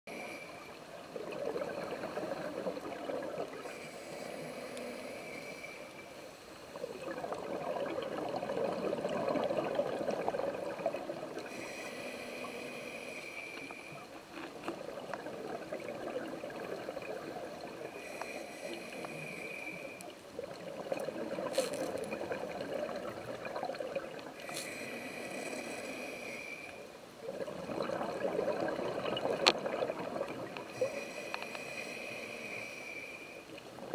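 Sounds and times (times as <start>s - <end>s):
regulator hiss on inhale: 0.1s - 1.0s, 3.5s - 7.0s, 11.4s - 14.5s, 17.8s - 20.2s, 24.4s - 27.0s, 30.6s - 33.6s
exhaled bubbles rushing: 1.0s - 3.8s, 6.8s - 11.5s, 14.8s - 18.0s, 20.4s - 24.5s, 27.2s - 30.9s.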